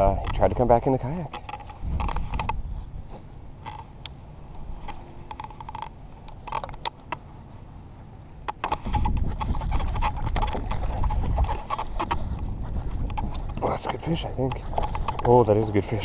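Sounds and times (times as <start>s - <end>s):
fishing reel clicking and creaking: 1.4s - 2.6s, 3.6s - 3.9s, 4.8s - 7.0s, 8.5s - 16.0s.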